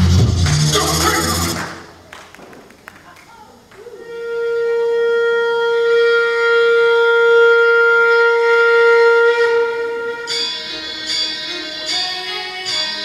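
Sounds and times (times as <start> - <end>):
dance music over loudspeakers: 0.0 - 1.8.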